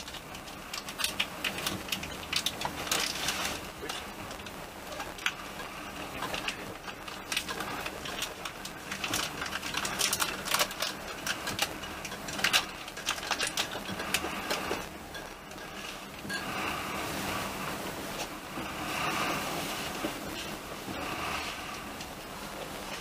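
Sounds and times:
clicks and rattles: 6.2s - 16.0s.

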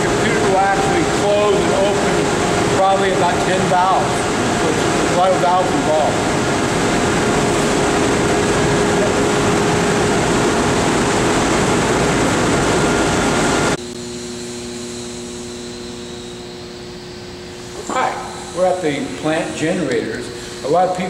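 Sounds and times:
machinery rushing noise: 0.0s - 13.8s
machine hum with steady tones: 0.0s - 21.0s.

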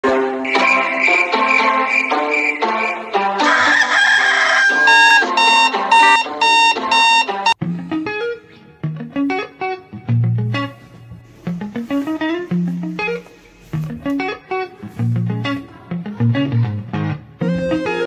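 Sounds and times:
background music: 0.0s - 18.0s
rooster crowing: 3.4s - 5.6s
alarm clock beeping: 4.7s - 7.6s
plucked guitar music: 4.7s - 18.0s.

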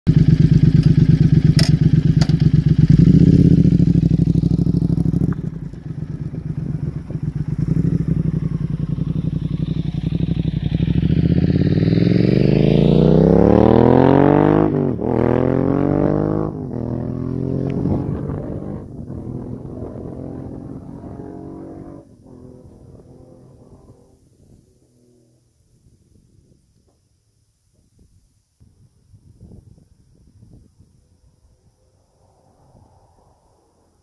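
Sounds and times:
motorcycle engine passing by: 0.1s - 25.5s.

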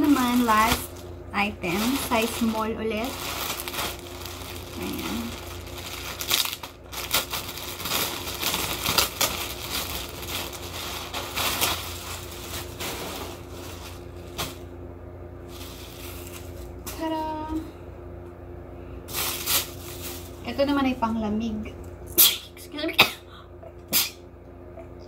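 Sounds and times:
plastic bag crinkling: 0.0s - 14.7s, 15.4s - 17.0s, 19.1s - 20.6s.

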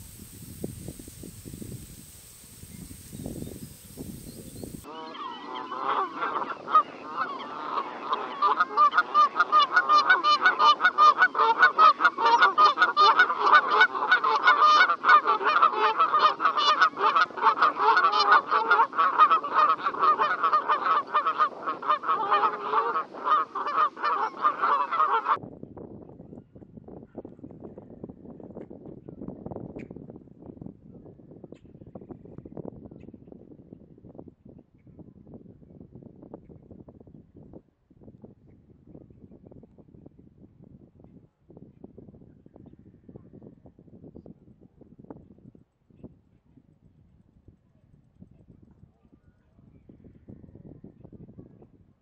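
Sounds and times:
flock of geese honking: 0.0s - 25.4s.

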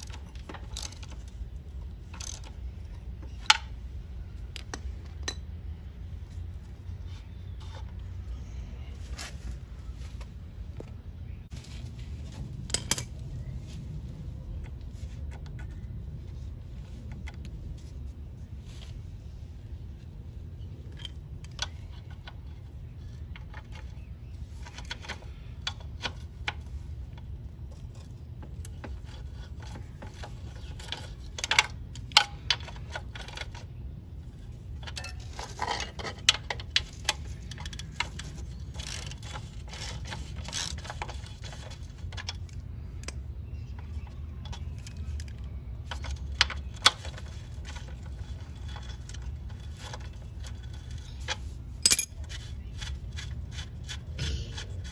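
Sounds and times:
metal tools clinking on axle: 0.0s - 3.8s, 12.5s - 13.4s, 20.6s - 54.9s.

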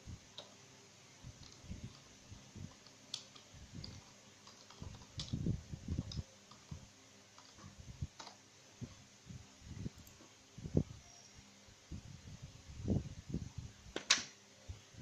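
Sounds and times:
mouse and keyboard clicks: 1.4s - 2.1s, 2.7s - 8.4s.

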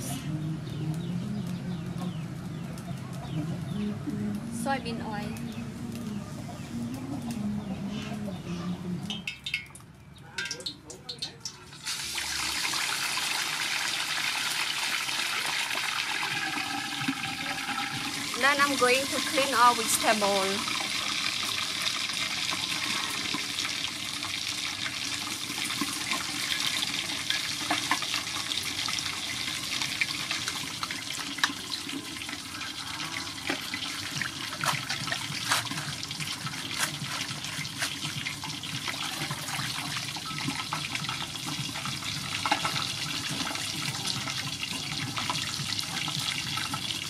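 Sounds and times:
water dripping: 9.0s - 12.0s.

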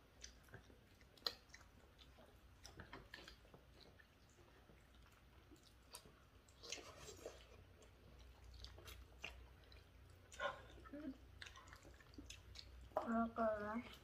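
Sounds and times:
person chewing food: 0.0s - 14.0s.

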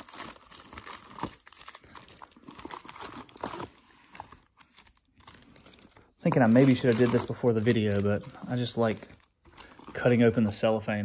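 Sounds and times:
foil packs crinkling: 0.0s - 10.8s.

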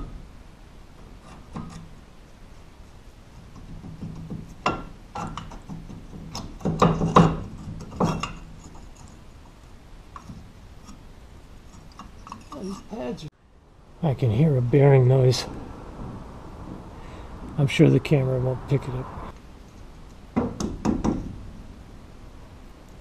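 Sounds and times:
metal knocks and scraping: 1.0s - 2.0s, 3.4s - 9.2s, 11.6s - 12.9s.

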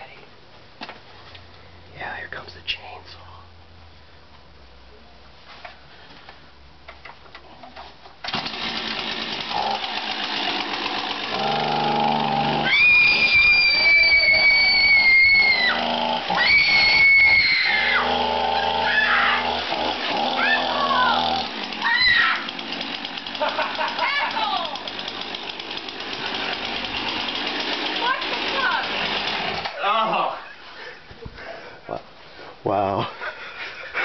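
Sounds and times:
chainsaw engine revving: 8.3s - 29.8s
woman screaming: 12.6s - 19.6s, 20.3s - 22.5s, 23.8s - 24.9s.

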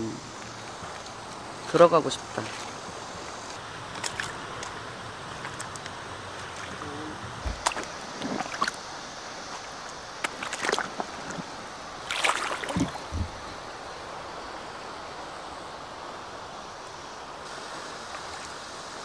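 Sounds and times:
river water running: 0.0s - 19.0s
splashes and knocks: 3.9s - 8.8s, 9.5s - 13.4s.

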